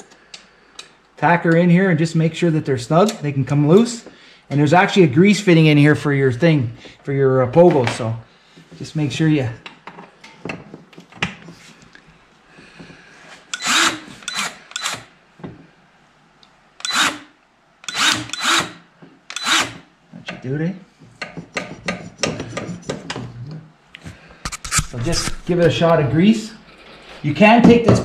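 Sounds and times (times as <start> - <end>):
cordless grease gun bursts: 13.5 - 15.1, 16.8 - 19.8.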